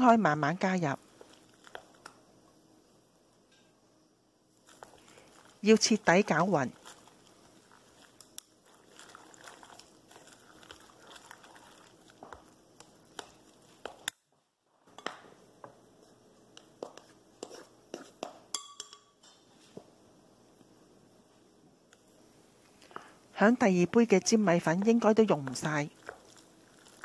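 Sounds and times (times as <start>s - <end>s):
chopsticks stirring thick batter: 4.6s - 14.1s, 16.0s - 18.4s, 23.4s - 27.0s
wet squelches: 4.7s - 13.9s.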